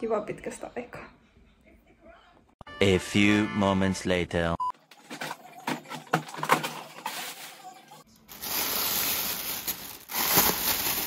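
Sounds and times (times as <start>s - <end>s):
packaging rustling and crinkling: 6.4s - 11.0s.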